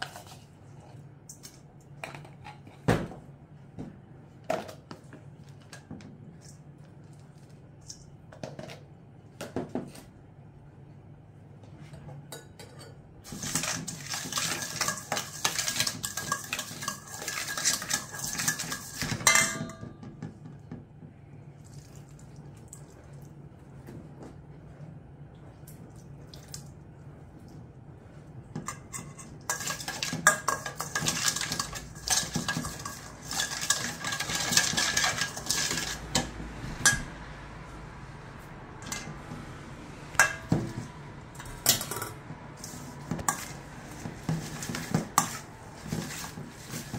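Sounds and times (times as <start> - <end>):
metal spoon clinking in bowl: 14.7 - 19.9.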